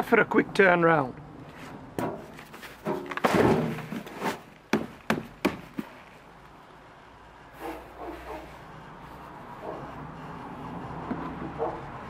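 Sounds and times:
bucket scraping off soil: 0:02.5 - 0:04.5.

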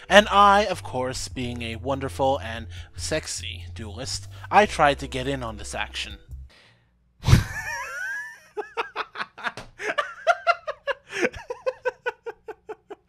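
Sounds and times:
man laughing: 0:07.2 - 0:13.0.

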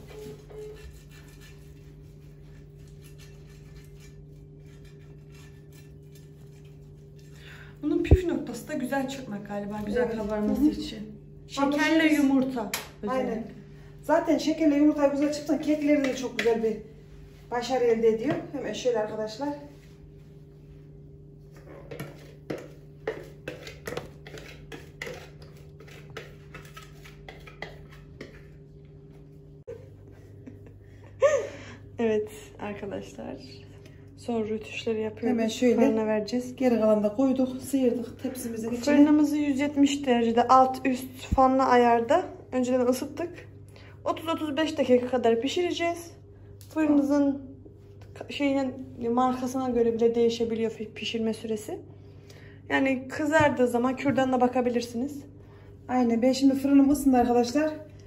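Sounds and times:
pastry brush rubbing glass dish: 0:00.0 - 0:07.5, 0:21.5 - 0:28.6
whisk scraping plastic bowl: 0:00.0 - 0:08.4, 0:21.5 - 0:28.7
steady low hum: 0:00.0 - 0:58.0.

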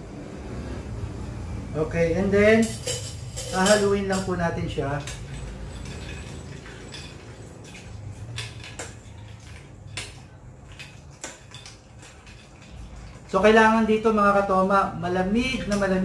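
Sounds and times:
ice cubes clinking on glass: 0:05.0 - 0:13.4.

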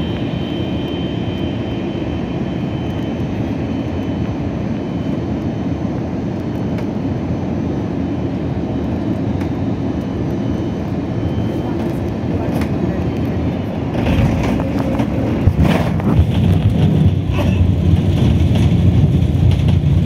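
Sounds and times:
jet engine cabin rumble: 0:00.0 - 0:20.0.

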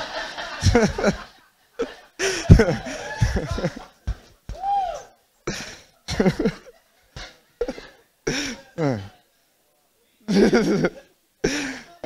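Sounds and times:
bursts of laughter: 0:00.0 - 0:04.4, 0:05.4 - 0:08.8, 0:10.3 - 0:11.9.

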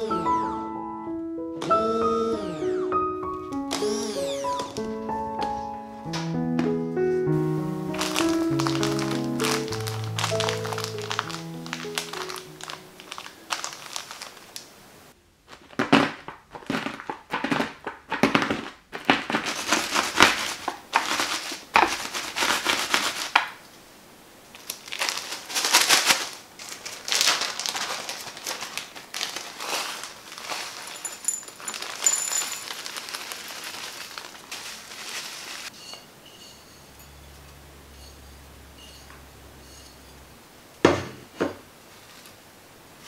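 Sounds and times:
plastic bag crinkling: 0:07.4 - 0:14.8, 0:15.4 - 0:23.6, 0:24.4 - 0:35.8
cookies cracking into crumbs: 0:07.9 - 0:14.7, 0:15.5 - 0:23.6, 0:24.5 - 0:35.0.

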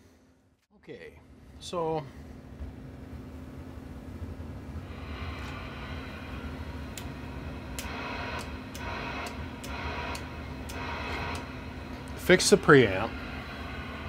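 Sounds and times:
steady electrical hum: 0:00.0 - 0:14.0
hiss: 0:04.8 - 0:14.0.

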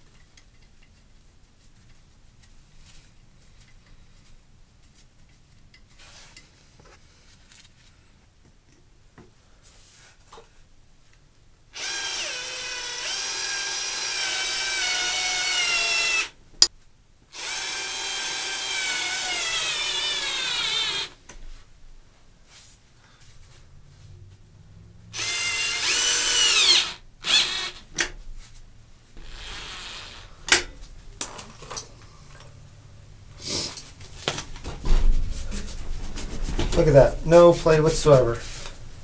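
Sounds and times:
cordless drill driving bolts: 0:11.8 - 0:16.4, 0:17.3 - 0:21.2, 0:25.1 - 0:28.1, 0:29.2 - 0:30.7.

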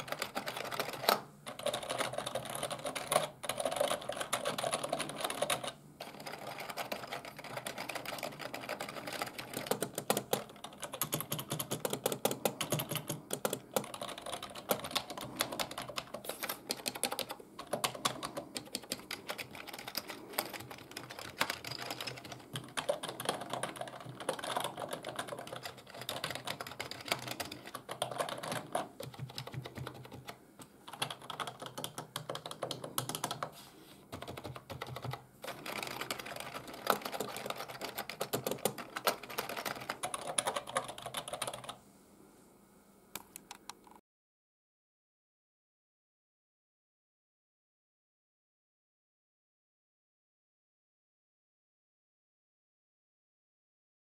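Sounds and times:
fast keyboard typing: 0:00.0 - 0:33.5, 0:34.1 - 0:41.8.

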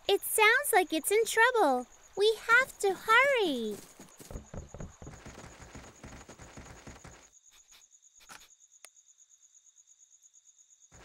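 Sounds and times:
crickets chirping: 0:00.0 - 0:11.0
running footsteps on forest ground: 0:03.6 - 0:07.3.

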